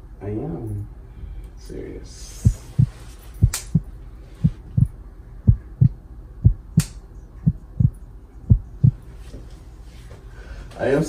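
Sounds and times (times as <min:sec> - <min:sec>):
heartbeat thumps: 0:02.4 - 0:09.1.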